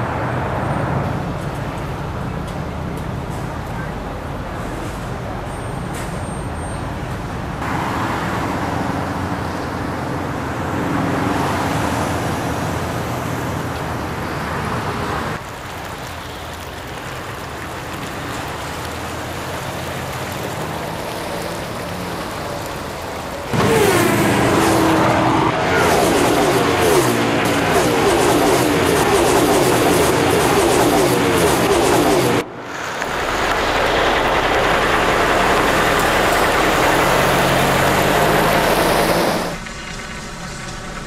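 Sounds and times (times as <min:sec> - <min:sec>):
city traffic noise: 0:00.0 - 0:41.0
car passing close by: 0:23.5 - 0:41.0.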